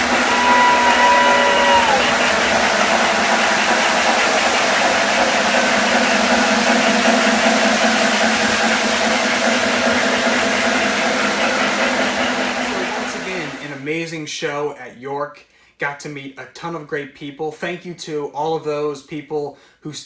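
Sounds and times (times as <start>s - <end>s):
wheels on rails: 0.0s - 13.7s
model train motor hum: 0.0s - 13.8s.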